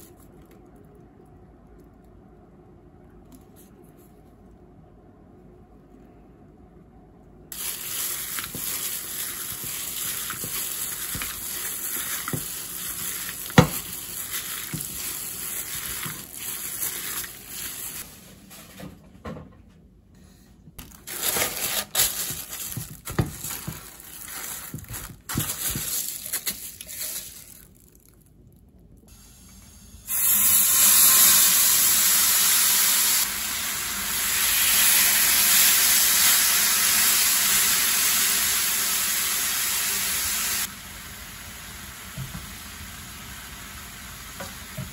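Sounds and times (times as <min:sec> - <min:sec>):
hands mixing meat in steel bowl: 0:07.5 - 0:18.3, 0:21.1 - 0:27.8
plastic bag rustling: 0:07.5 - 0:18.8, 0:20.8 - 0:28.3
meat sizzling in a frying pan: 0:07.6 - 0:18.0, 0:30.1 - 0:44.9.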